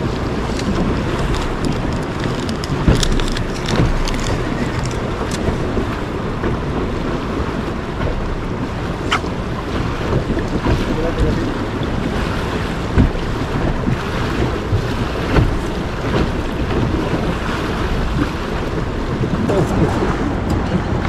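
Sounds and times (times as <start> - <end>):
water lapping against boat hull: 0.0 - 21.0
wind noise on microphone: 0.0 - 21.0.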